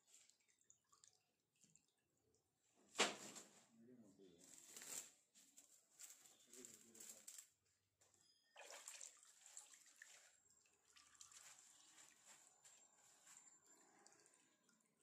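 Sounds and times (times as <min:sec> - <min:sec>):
liquid swishing and dripping: 0:00.0 - 0:02.6, 0:08.6 - 0:15.0.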